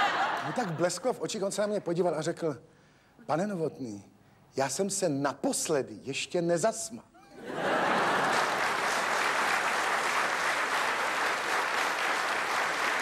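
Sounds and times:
audience applauding: 7.8 - 13.0.

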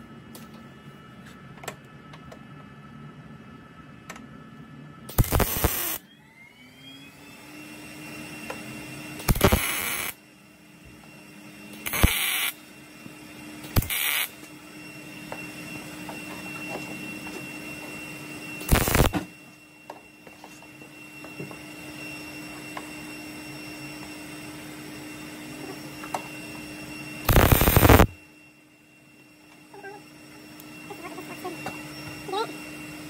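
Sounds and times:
welder hum: 5.1 - 6.0, 8.2 - 11.1, 11.7 - 28.8
welding arc bursts: 5.1 - 6.0, 9.2 - 10.2, 11.8 - 12.6, 13.7 - 14.4, 18.6 - 19.2, 27.2 - 28.2.

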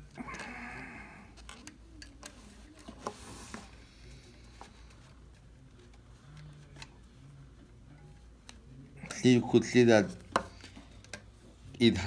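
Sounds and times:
small metal parts clicking: 1.4 - 2.4.

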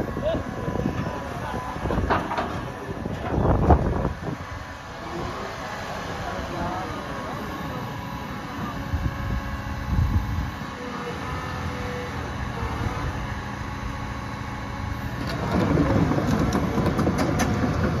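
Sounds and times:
diesel engine low hum: 0.0 - 18.0
crawler tracks clanking and squeaking: 1.8 - 3.6, 15.1 - 18.0.

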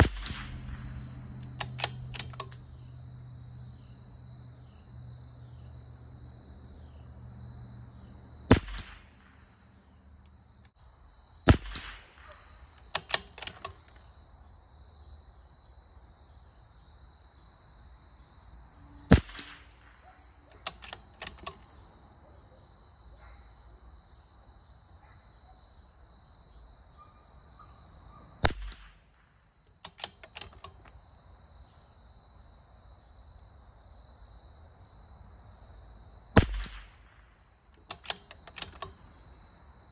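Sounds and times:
rifle shots: 0.0 - 2.6, 8.5 - 9.5, 11.4 - 13.9, 19.1 - 21.7, 28.4 - 30.7, 36.4 - 39.0
rifle bolt clicking: 0.0 - 2.8, 11.6 - 14.0, 20.5 - 21.8, 29.7 - 31.0, 37.8 - 39.1.

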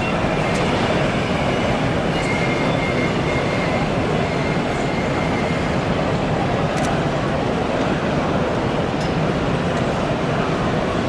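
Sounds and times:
model train running: 0.0 - 8.5
exhibition hall hubbub: 0.0 - 11.0.

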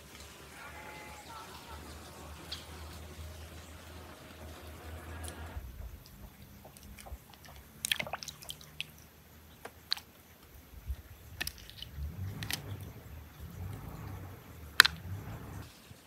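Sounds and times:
wet squishing of fruit: 5.1 - 15.6.

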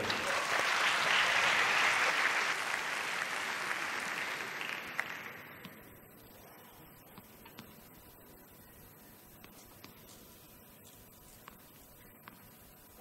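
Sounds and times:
crowd applauding: 0.0 - 5.5.

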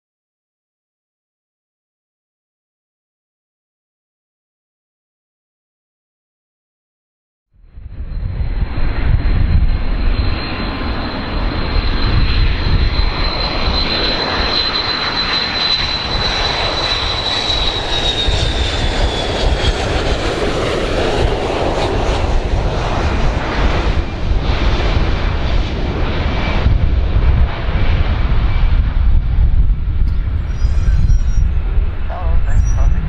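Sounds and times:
jet engine high whine: 7.6 - 33.0
jet engine roar: 7.7 - 33.0.

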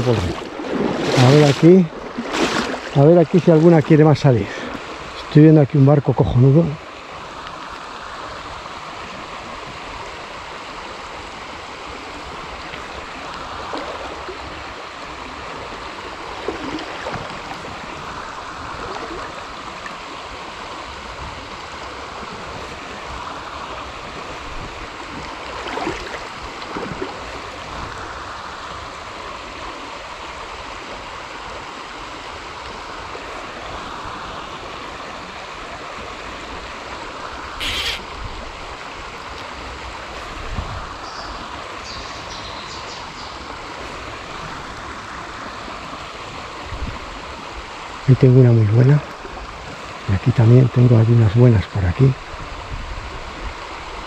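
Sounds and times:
brief louder splashes: 0.0 - 3.0
river water flowing: 0.0 - 54.0.

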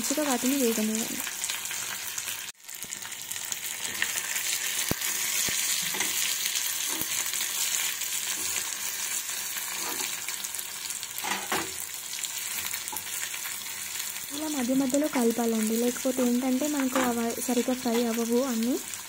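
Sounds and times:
food sizzling in hot oil: 0.0 - 19.0
metal spatula scraping pan: 9.6 - 10.3.

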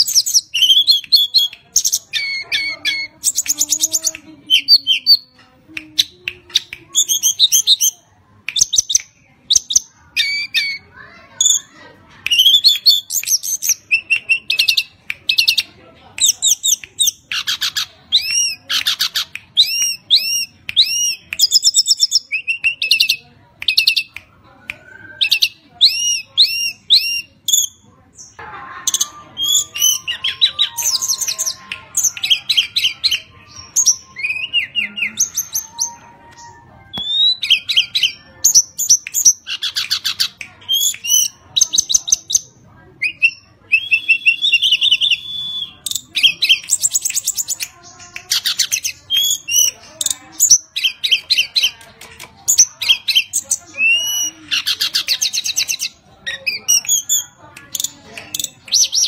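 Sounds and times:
bird whistling song: 29.4 - 42.4, 43.0 - 47.6.

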